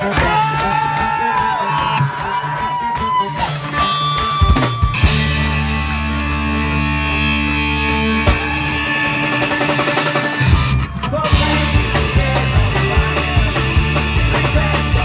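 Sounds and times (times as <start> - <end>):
guitars and fiddle chord: 5.0 - 15.0.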